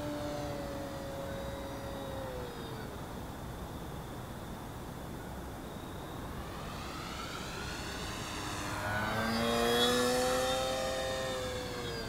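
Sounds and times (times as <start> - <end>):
model plane motor whining: 0.0 - 3.2, 5.9 - 12.0.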